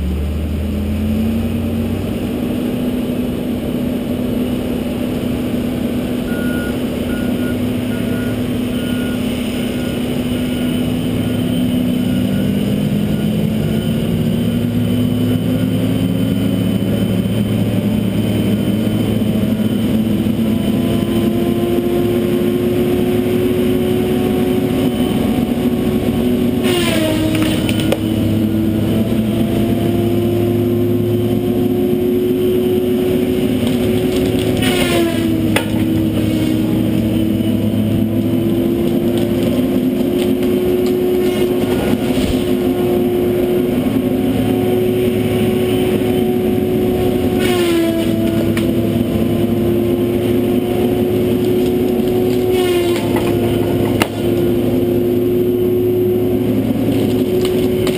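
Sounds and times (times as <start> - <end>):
disc saw whining: 8.3 - 57.9
saw cutting into tree: 26.6 - 28.1, 33.1 - 37.2, 47.2 - 48.8, 51.2 - 54.6.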